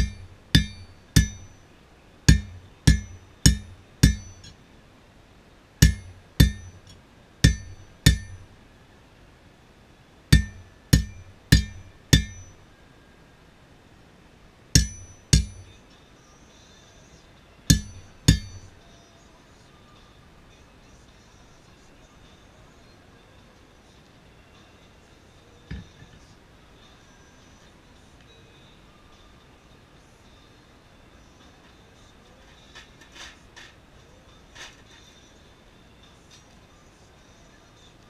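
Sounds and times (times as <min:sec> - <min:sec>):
hammer striking steel anvil: 0:00.0 - 0:01.6, 0:02.3 - 0:04.6, 0:05.8 - 0:08.5, 0:10.3 - 0:12.6, 0:14.8 - 0:15.8, 0:17.7 - 0:18.8.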